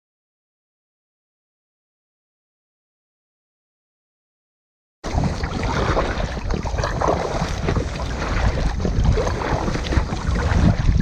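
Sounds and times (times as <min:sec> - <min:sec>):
water splashing and lapping: 0:05.0 - 0:11.0
wind rumbling on microphone: 0:05.0 - 0:11.0.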